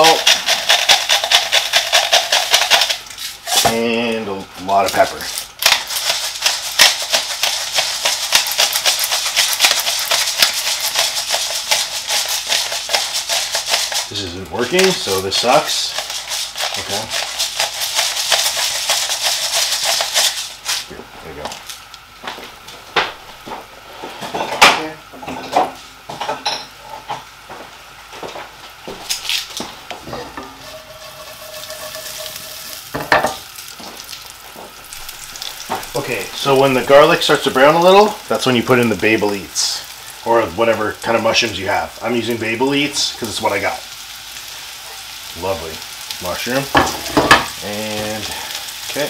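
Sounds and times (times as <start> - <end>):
pan and utensils clattering: 0.0 - 3.8, 24.1 - 27.3, 30.0 - 33.5, 46.6 - 47.6
pepper mill crunching peppercorns: 0.0 - 22.0, 28.9 - 43.8, 45.2 - 49.0
frying sizzle: 0.0 - 49.0.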